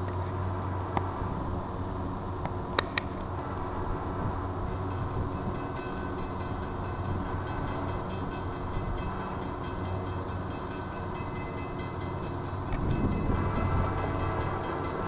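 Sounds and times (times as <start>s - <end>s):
diesel train rumble: 0.0s - 15.0s
crossing bell ringing: 4.6s - 15.0s.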